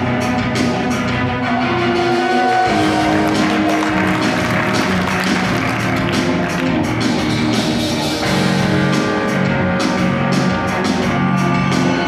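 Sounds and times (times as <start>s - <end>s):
sustained music notes: 1.8s - 9.5s
drum beat: 2.7s - 7.6s.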